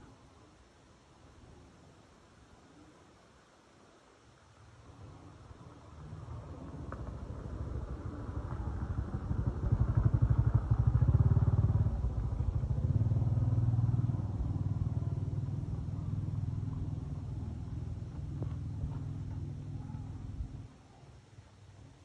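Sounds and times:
motorcycle engine running: 6.3s - 20.6s.

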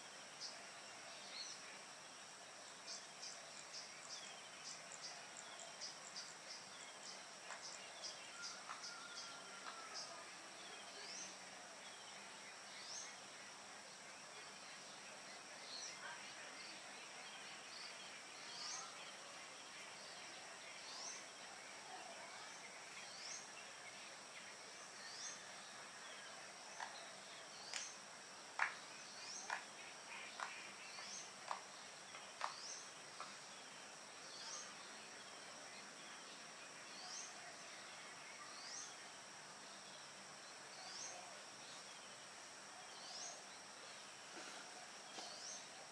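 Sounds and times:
high insect drone: 0.0s - 45.9s.

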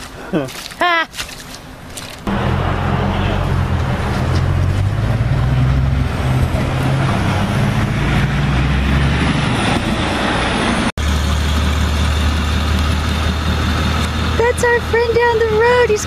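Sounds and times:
vehicle engine idling: 2.3s - 6.7s, 10.5s - 16.0s.

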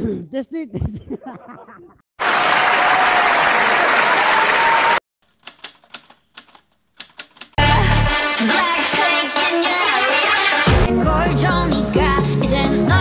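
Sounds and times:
applause: 2.2s - 5.0s.

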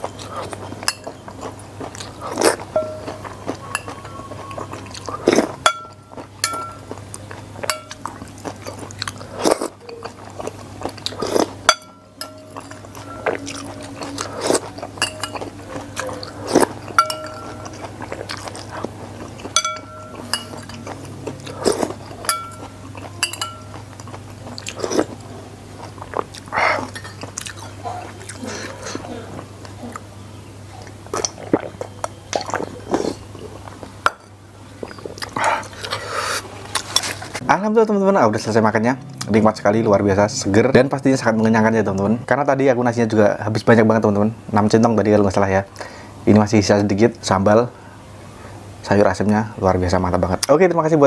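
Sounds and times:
chewing: 0.0s - 30.1s, 30.7s - 34.1s, 34.7s - 37.4s
spoon clinking on ceramic bowl: 2.8s - 4.9s, 5.6s - 7.0s, 7.6s - 8.1s, 11.7s - 14.3s, 14.9s - 17.9s, 19.5s - 20.9s, 21.9s - 23.9s.

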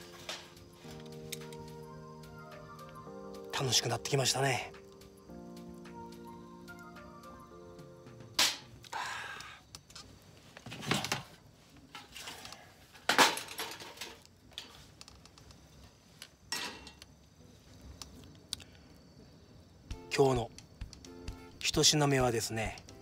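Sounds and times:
objects knocking and clattering: 13.0s - 14.7s.

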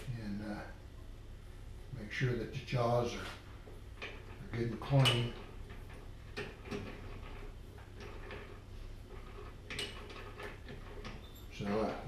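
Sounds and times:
light metal clicks and knocks: 3.6s - 12.0s.

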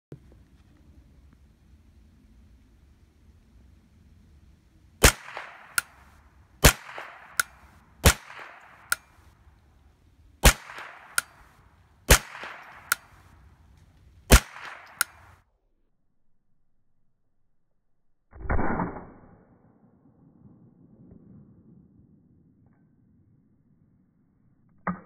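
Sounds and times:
rifle shots: 5.0s - 9.4s, 10.4s - 13.4s, 14.3s - 15.4s.

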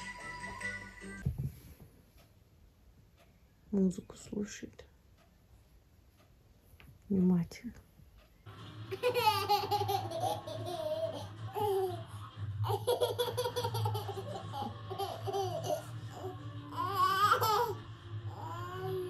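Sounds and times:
baby giggling: 8.9s - 19.0s
baby babbling: 16.1s - 19.0s.

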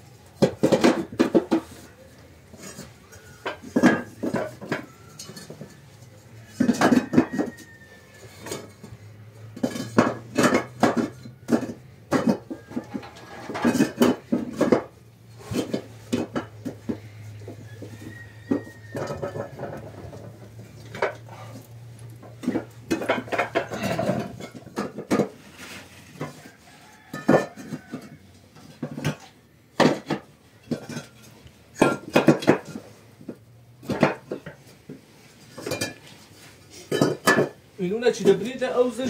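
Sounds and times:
clay bricks knocking together: 0.4s - 1.8s, 31.8s - 32.7s.

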